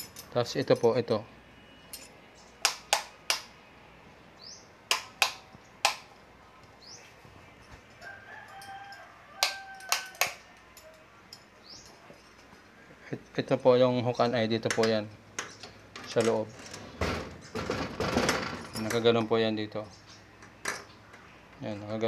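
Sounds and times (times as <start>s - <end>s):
bird calls and chirps: 4.4s - 4.7s, 11.6s - 12.1s, 19.8s - 21.4s.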